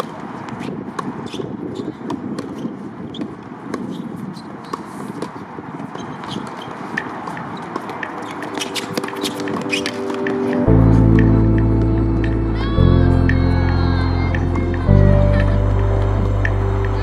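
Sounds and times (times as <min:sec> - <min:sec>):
tennis balls struck and bouncing: 0:00.0 - 0:04.0, 0:04.6 - 0:12.4
steady background rush: 0:05.3 - 0:17.0.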